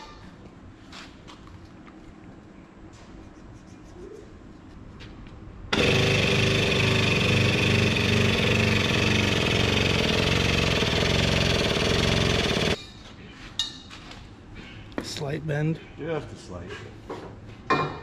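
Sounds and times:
machine motor whirring: 5.7s - 12.8s.

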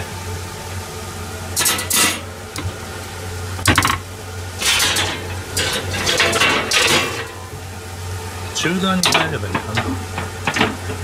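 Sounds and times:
steady low hum: 0.0s - 11.0s
toaster oven door and rack rattling: 1.6s - 2.2s, 4.6s - 7.5s, 8.9s - 11.0s.

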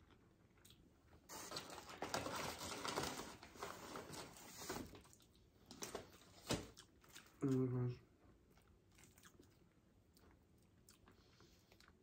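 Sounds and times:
paper bag rustling: 1.3s - 5.0s.

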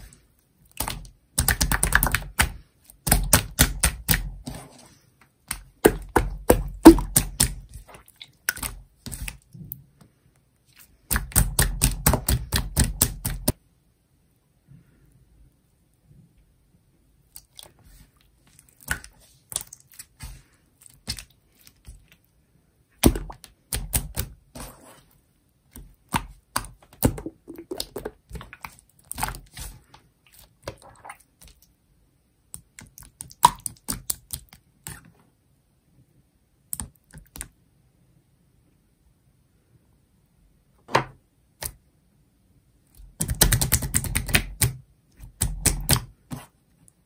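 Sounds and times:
slime squeezed with sticky pops: 5.6s - 9.4s.

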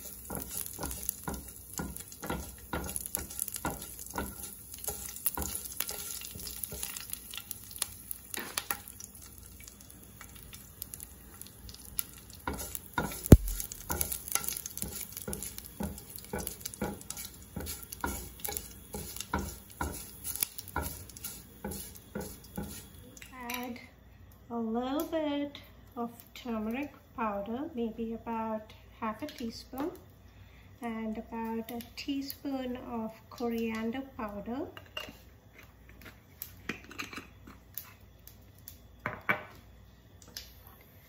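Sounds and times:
spatula scraping frying pan: 0.0s - 7.1s, 12.4s - 23.0s
light sizzle in hot oil: 0.0s - 41.0s.

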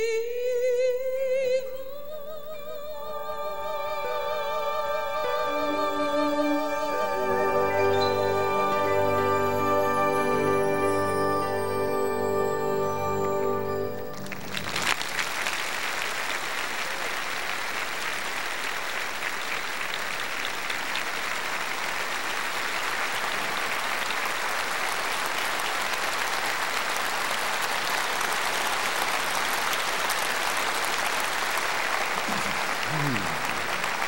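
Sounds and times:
large audience applauding: 12.8s - 34.0s.

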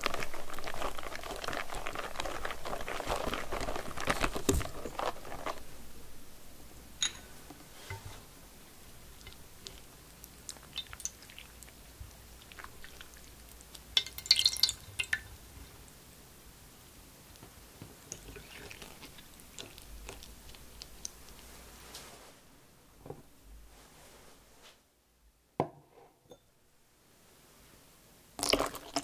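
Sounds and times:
utensils tapping glass bowl: 7.0s - 8.1s.

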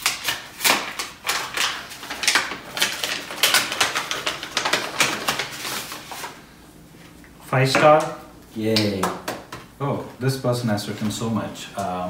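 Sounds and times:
paper crinkling and crackling: 0.0s - 6.4s.

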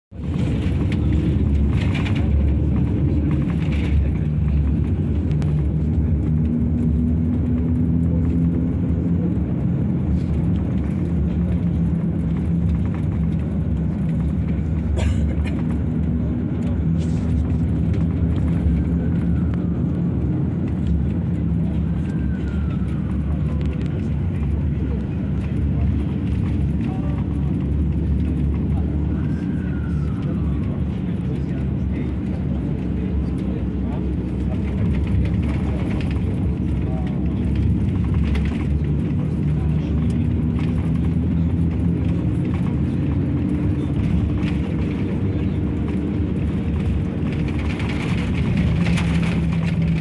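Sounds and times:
road noise: 0.1s - 50.0s
vehicle engine drone: 0.1s - 50.0s.

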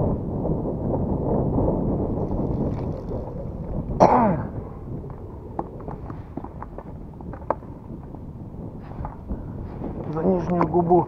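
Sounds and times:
wind and water noise: 0.0s - 11.0s
man coughing: 4.0s - 4.6s.

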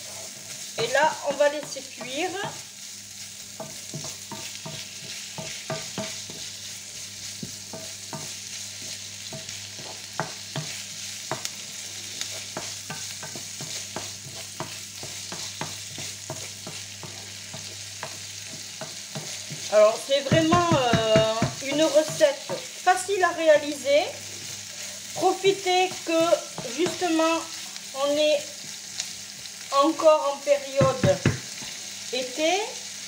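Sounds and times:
onions sizzling in a frying pan: 0.0s - 33.0s
wooden spatula scraping pan: 3.6s - 27.6s.

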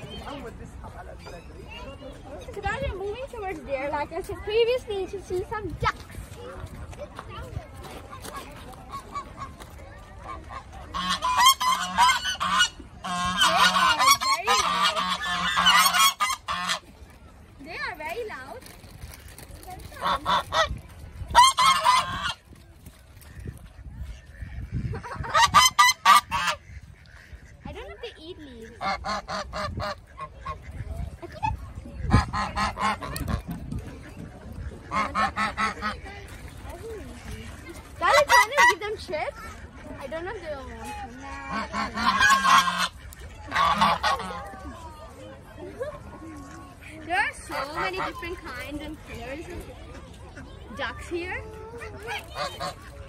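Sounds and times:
geese honking: 10.2s - 16.9s, 20.0s - 22.4s, 23.2s - 31.2s, 32.0s - 37.3s, 38.0s - 44.6s, 52.0s - 53.0s.

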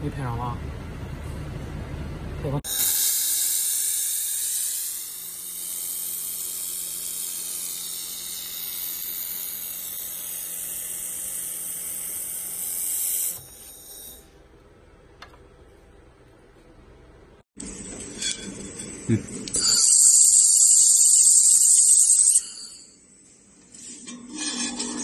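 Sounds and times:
laser welding gun hissing: 2.7s - 14.3s, 17.6s - 23.0s.

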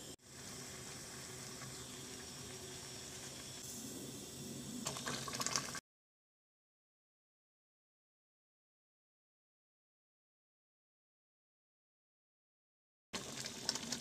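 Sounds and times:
pot bubbling at a simmer: 0.0s - 5.8s, 13.2s - 14.0s.

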